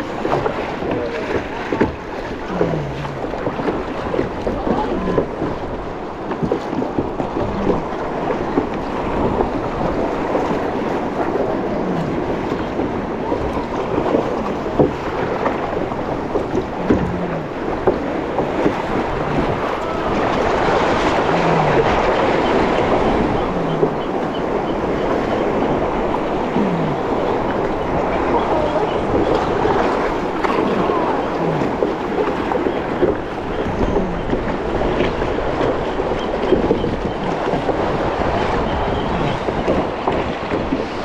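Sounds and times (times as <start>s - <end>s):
water splashing around kayak: 0.0s - 41.0s
wind buffeting microphone: 0.0s - 41.0s.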